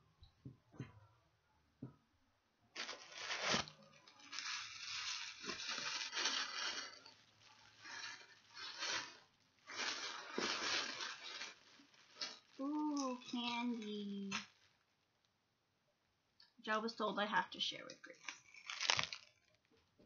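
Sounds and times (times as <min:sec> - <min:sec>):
tissue paper rustling: 0:02.8 - 0:12.8, 0:18.5 - 0:19.3.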